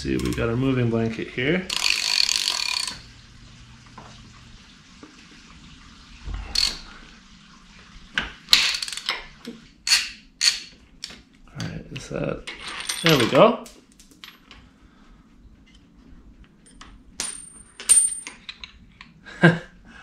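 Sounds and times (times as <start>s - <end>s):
ratchet wrench clicks: 1.7s - 3.0s
ratchet wrench rasping: 1.7s - 3.0s.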